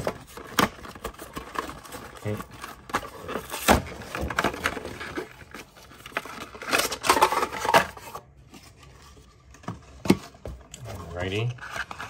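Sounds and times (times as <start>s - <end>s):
plastic packaging clicking and crinkling: 0.0s - 8.2s.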